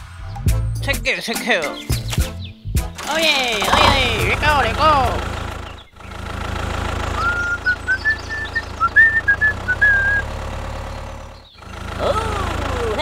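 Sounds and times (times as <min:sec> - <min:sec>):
tractor engine idling: 0:03.0 - 0:13.0
person whistling a tune: 0:07.2 - 0:10.2.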